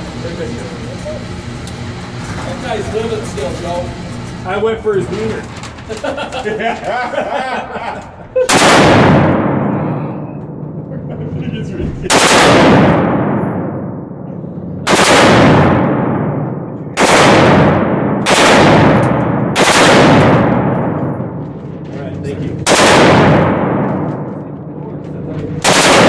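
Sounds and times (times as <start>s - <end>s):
automatic gunfire bursts: 8.5s - 9.6s, 12.1s - 13.3s, 14.9s - 16.2s, 17.0s - 21.0s, 22.6s - 24.3s, 25.6s - 26.0s.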